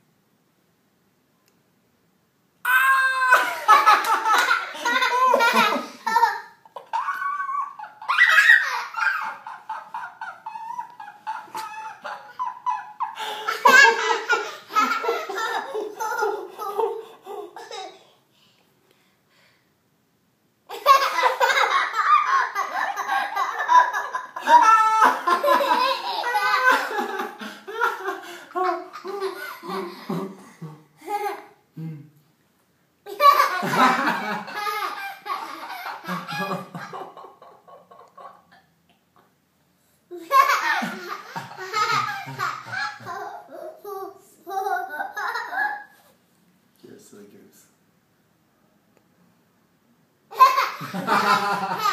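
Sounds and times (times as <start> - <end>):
toddler laughing: 2.9 - 18.1, 20.7 - 31.6, 33.1 - 38.6, 40.1 - 46.1, 50.3 - 51.9
man laughing: 24.3 - 30.9, 35.7 - 38.4.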